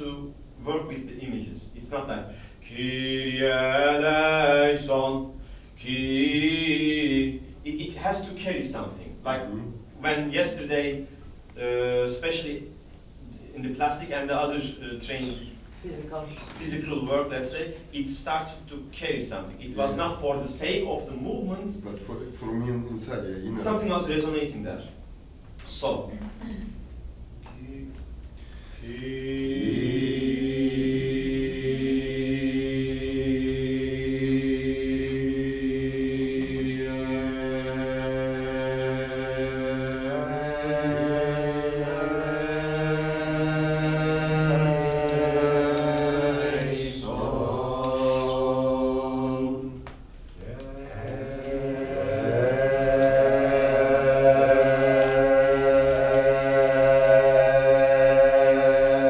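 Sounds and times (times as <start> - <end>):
group singing a slow chant: 2.3 - 8.2, 28.4 - 59.0.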